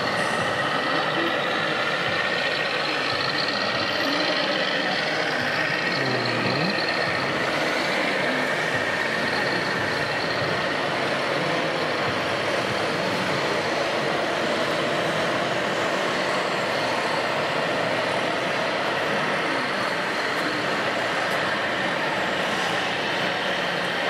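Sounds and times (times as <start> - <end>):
high whine: 0.0 - 24.0
model tractor running: 0.0 - 24.0.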